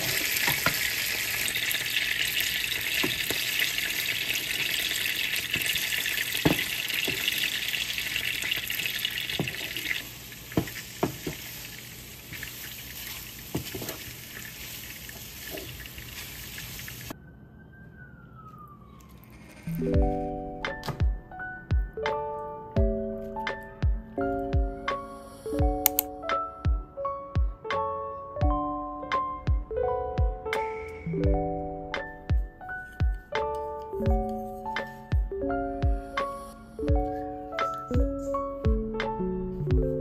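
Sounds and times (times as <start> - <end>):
eggs sizzling in a frying pan: 0.0 - 17.1
spatula scraping and knocking on pan: 10.6 - 11.6, 13.5 - 14.1.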